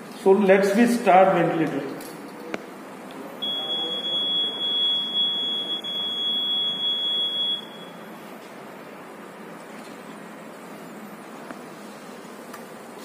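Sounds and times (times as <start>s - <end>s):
high-pitched ventilator beep: 3.4s - 8.2s.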